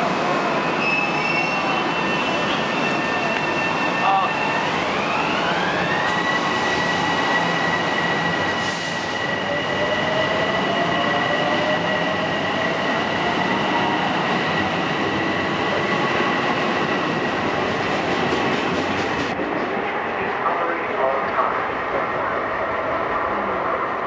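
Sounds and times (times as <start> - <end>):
train wheels rumbling on rails: 1.9 - 21.5.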